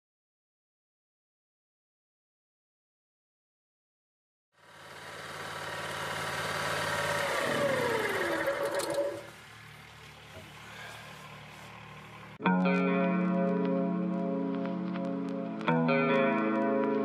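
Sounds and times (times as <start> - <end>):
small petrol engine running: 4.6 - 12.4.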